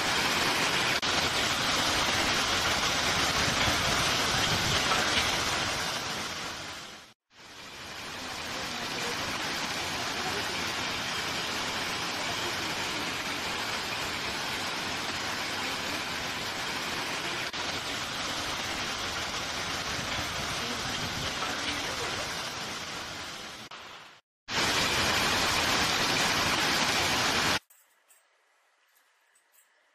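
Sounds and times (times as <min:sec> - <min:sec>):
steady rain: 0:00.0 - 0:27.7.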